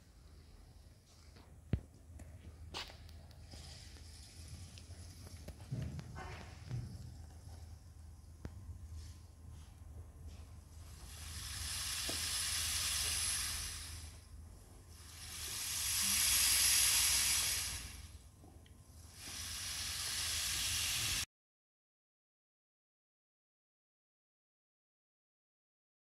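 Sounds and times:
steady low hum: 0:00.0 - 0:21.3
rushing hiss: 0:10.8 - 0:14.2, 0:14.9 - 0:18.2, 0:19.0 - 0:21.3.

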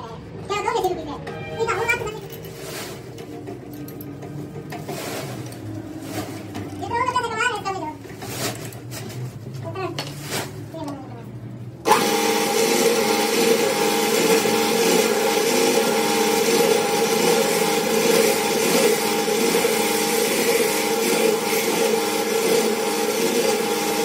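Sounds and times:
pillar drill drilling metal: 0:11.9 - 0:24.0.

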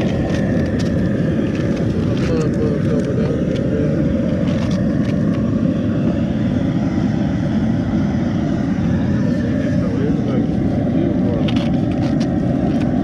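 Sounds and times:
loud low rumble: 0:00.0 - 0:13.0.

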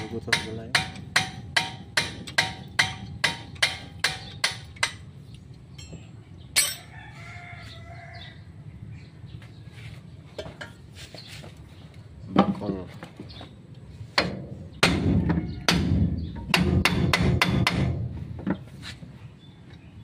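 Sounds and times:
rooster crowing: 0:06.8 - 0:08.6.

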